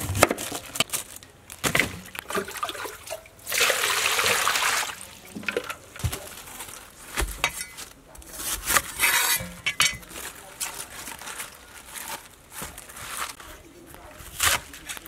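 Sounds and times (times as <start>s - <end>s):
water pouring into steel pot: 2.2s - 5.8s.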